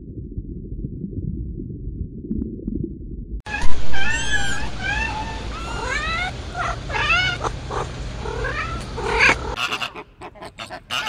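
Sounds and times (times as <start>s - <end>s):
low steady hum: 0.0s - 11.0s
kitten mewing: 3.5s - 11.0s.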